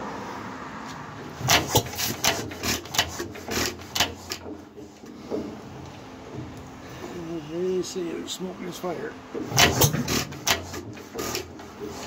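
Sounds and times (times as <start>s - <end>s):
sharp rasping scrapes of engine linkage: 1.4s - 5.5s, 9.5s - 12.0s.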